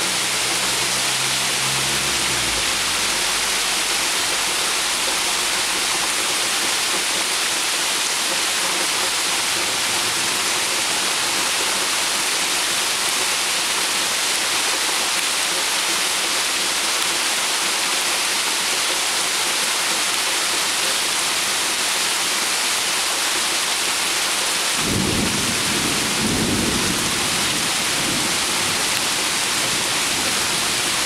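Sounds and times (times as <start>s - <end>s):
heavy rain on pond water: 0.0s - 31.0s
small waterfall splashing: 0.0s - 31.0s
low thunder rumble: 24.8s - 28.9s.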